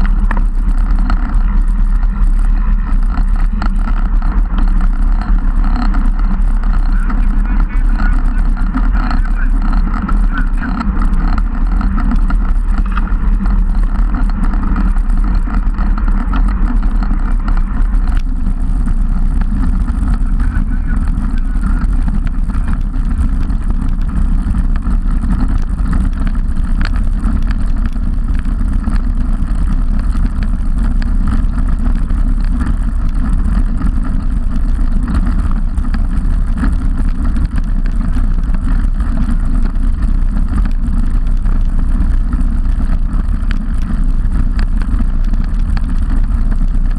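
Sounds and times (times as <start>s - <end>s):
tyre noise on tarmac: 0.0s - 46.9s.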